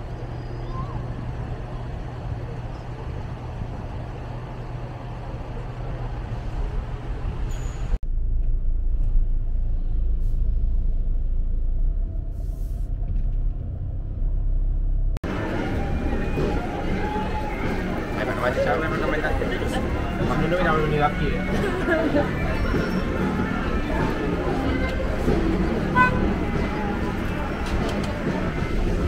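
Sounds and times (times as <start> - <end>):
vehicle engine rumble: 0.0 - 29.0.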